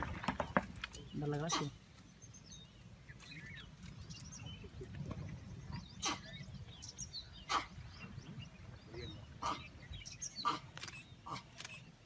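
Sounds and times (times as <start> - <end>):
small birds chirping: 0.0 - 12.0
sharp clicks: 10.7 - 11.9.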